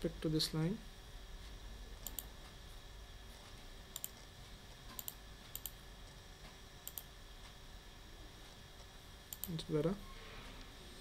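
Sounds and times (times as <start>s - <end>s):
faint hum: 0.0s - 11.0s
computer mouse clicks: 2.0s - 2.3s, 3.9s - 4.2s, 4.9s - 5.8s, 6.8s - 7.1s, 9.3s - 9.6s.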